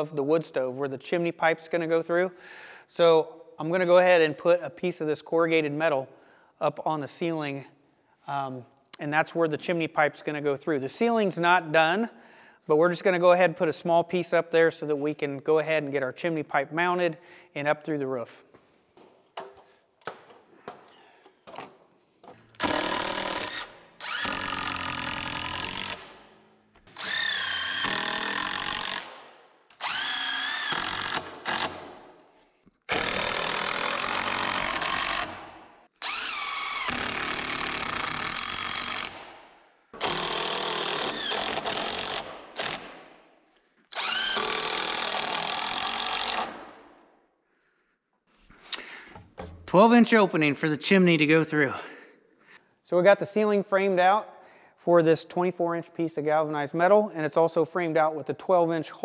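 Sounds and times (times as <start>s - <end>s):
cordless drill driving screws: 22.5s - 26.2s, 26.9s - 31.9s, 32.9s - 39.3s, 40.0s - 43.0s, 43.9s - 46.6s.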